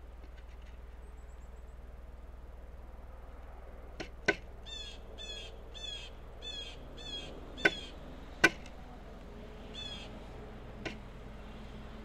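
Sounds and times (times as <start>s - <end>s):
woodpecker knocking on wood: 4.0s - 4.8s, 7.6s - 8.8s, 10.8s - 11.2s
small bird calling: 4.0s - 12.0s.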